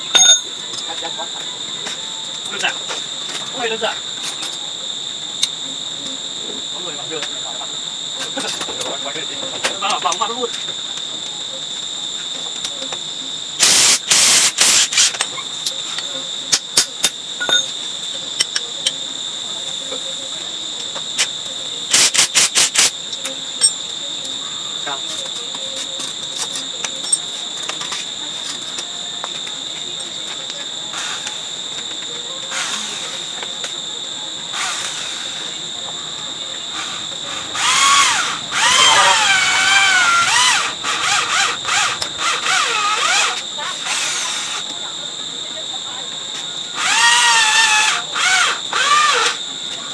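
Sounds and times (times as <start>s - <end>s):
crickets trilling: 0.0s - 49.9s
electric drill speeding up and slowing: 13.6s - 15.2s, 34.5s - 35.5s, 36.7s - 44.6s, 46.8s - 49.4s
power tool hissing bursts: 13.6s - 15.2s, 21.9s - 23.0s, 32.5s - 33.3s, 34.5s - 35.5s.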